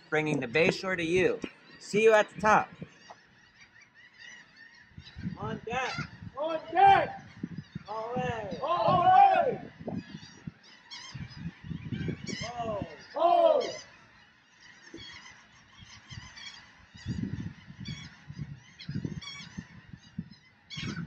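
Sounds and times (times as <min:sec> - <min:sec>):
bird honking calls: 0:00.0 - 0:21.0
high bird chirping: 0:00.0 - 0:21.0.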